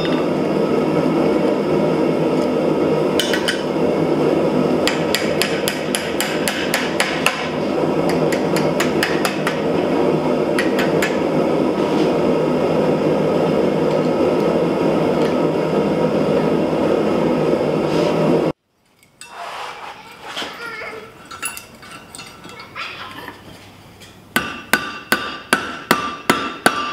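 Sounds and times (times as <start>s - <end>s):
hammer striking hot steel: 3.1s - 3.7s, 4.8s - 9.9s, 10.5s - 11.3s, 24.3s - 26.9s.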